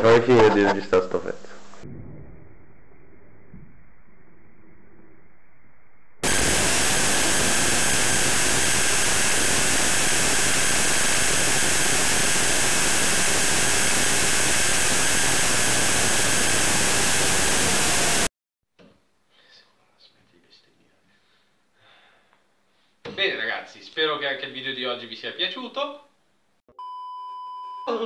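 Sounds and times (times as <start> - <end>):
saw motor whining: 6.2 - 18.3.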